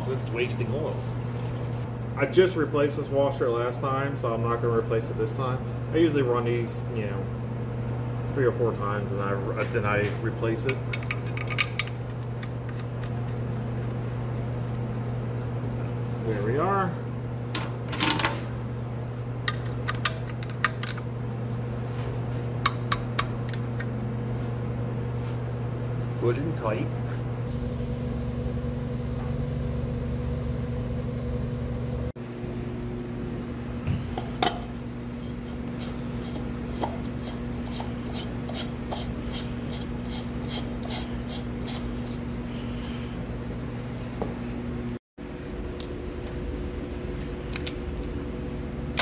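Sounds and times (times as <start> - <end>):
steady low hum: 0.0 - 49.0
oil glugging into funnel: 0.9 - 1.9.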